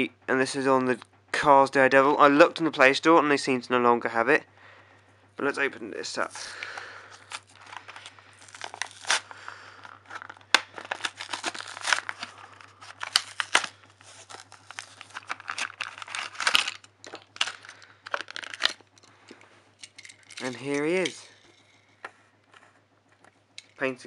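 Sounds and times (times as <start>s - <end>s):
cardboard box tearing and crinkling: 7.3s - 18.8s.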